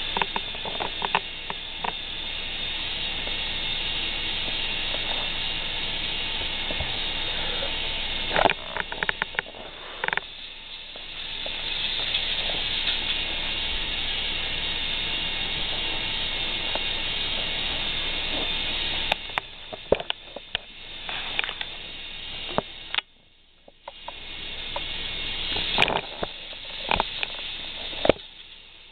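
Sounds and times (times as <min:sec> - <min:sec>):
toy roller coaster lift whirring: 0:00.0 - 0:23.0
sharp clicks and knocks: 0:00.1 - 0:02.0, 0:08.3 - 0:10.4, 0:18.4 - 0:21.8.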